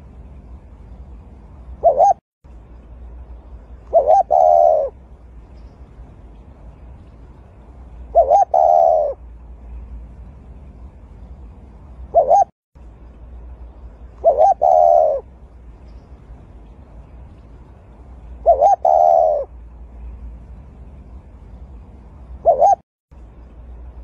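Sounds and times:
dove cooing: 0:01.8 - 0:02.2, 0:03.8 - 0:05.0, 0:08.1 - 0:09.2, 0:12.1 - 0:12.5, 0:14.2 - 0:15.3, 0:18.4 - 0:19.6, 0:22.4 - 0:22.8.

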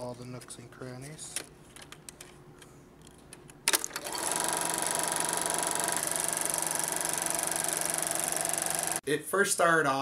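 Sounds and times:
film projector clatter and hum: 0:03.6 - 0:09.0.

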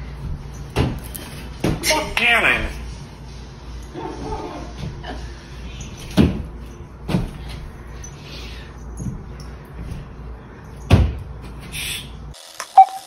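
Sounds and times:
steady low hum: 0:02.7 - 0:12.4.

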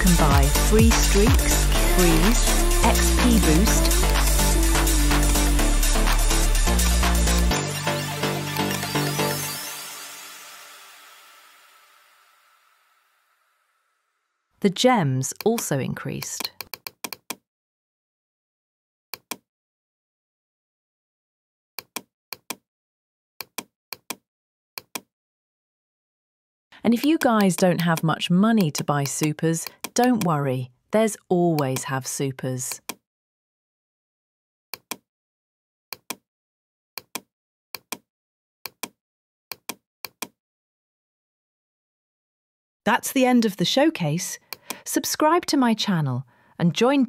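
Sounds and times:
computer mouse clicks: 0:15.3 - 0:17.4, 0:19.2 - 0:19.4, 0:23.4 - 0:24.2, 0:24.8 - 0:25.1, 0:27.0 - 0:30.4, 0:34.8 - 0:35.0, 0:35.9 - 0:36.2, 0:37.0 - 0:38.0, 0:38.7 - 0:40.4
computer mouse button clicking: 0:19.2 - 0:19.4, 0:34.8 - 0:35.0, 0:36.0 - 0:36.2, 0:37.0 - 0:38.0, 0:38.7 - 0:40.4.

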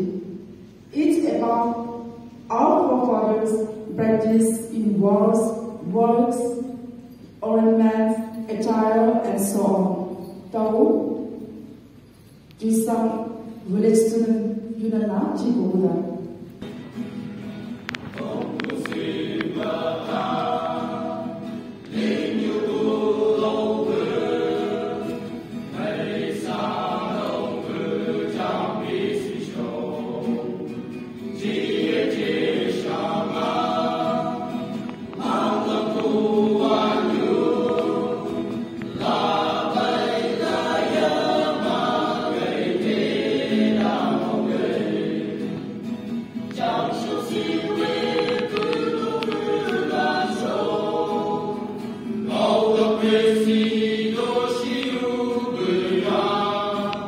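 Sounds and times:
men singing in chorus: 0:18.2 - 0:30.7, 0:31.4 - 0:45.6, 0:46.6 - 0:57.0.

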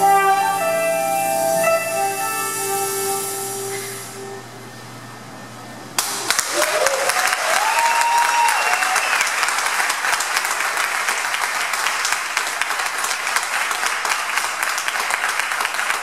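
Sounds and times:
audience applauding: 0:06.0 - 0:16.0
audience cheering: 0:06.0 - 0:16.0.

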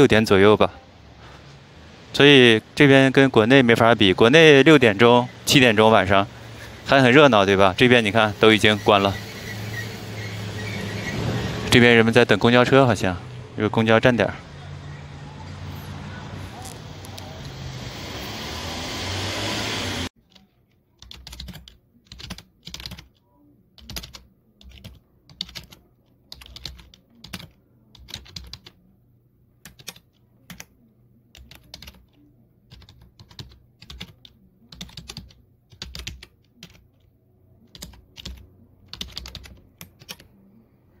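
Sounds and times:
computer keyboard typing: 0:20.2 - 0:23.2, 0:23.8 - 0:28.8, 0:29.6 - 0:30.7, 0:31.3 - 0:40.3.

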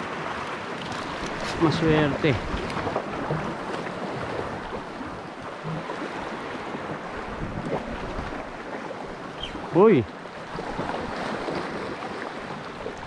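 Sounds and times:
wind buffeting microphone: 0:00.0 - 0:09.8
sea waves washing in: 0:00.0 - 0:13.0.

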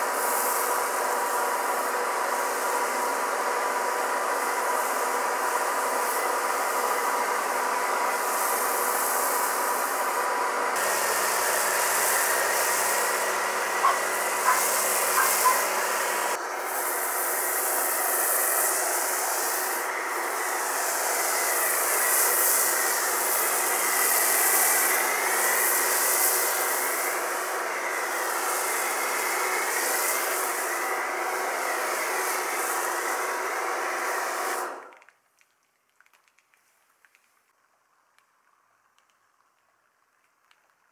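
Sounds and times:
pressure washer spray hissing: 0:00.0 - 0:34.8
washer motor humming: 0:10.8 - 0:16.6.

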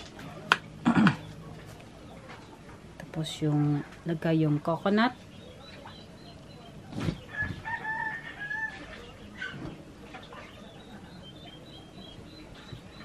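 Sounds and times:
small birds chirping: 0:00.2 - 0:13.0
rooster crowing: 0:07.3 - 0:08.9.

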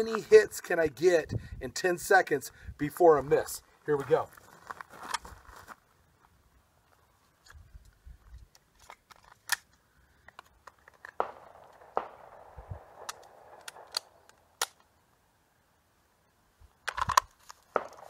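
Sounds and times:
handgun shots: 0:11.2 - 0:14.8.

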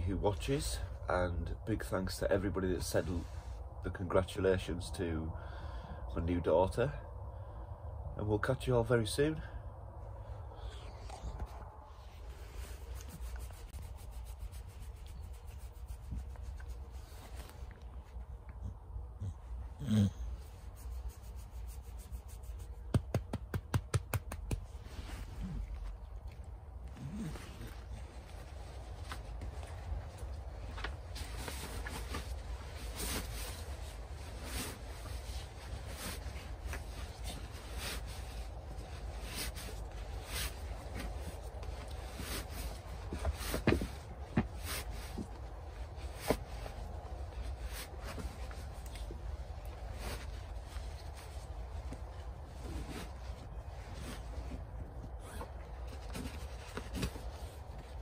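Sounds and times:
low steady rumble: 0:00.0 - 0:58.0
fabric rustling and swishing: 0:11.0 - 0:18.4, 0:20.5 - 0:26.0, 0:26.9 - 0:58.0
hand scratching dog fur: 0:11.1 - 0:18.2, 0:20.4 - 0:25.6.

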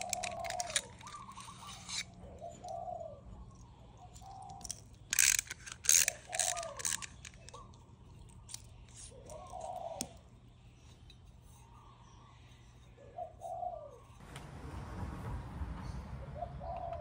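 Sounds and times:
dove cooing: 0:00.0 - 0:03.5, 0:09.1 - 0:10.2, 0:13.0 - 0:14.0, 0:16.3 - 0:17.0.

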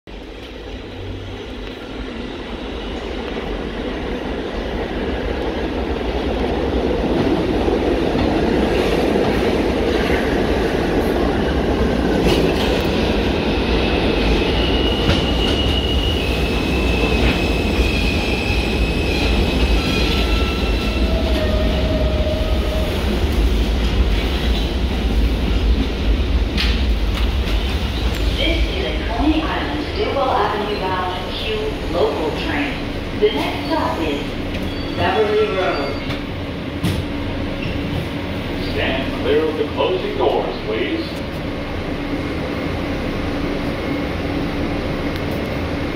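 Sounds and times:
subway train rumble: 0:00.1 - 0:45.9
train brakes squealing: 0:14.2 - 0:23.0, 0:33.2 - 0:36.4.

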